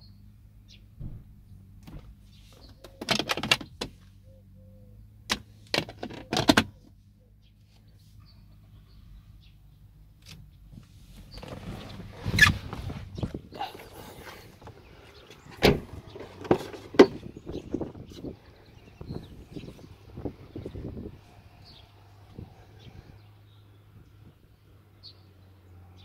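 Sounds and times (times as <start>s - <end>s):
car fittings clicking and knocking: 1.8s - 3.9s, 5.3s - 6.8s, 14.6s - 17.3s.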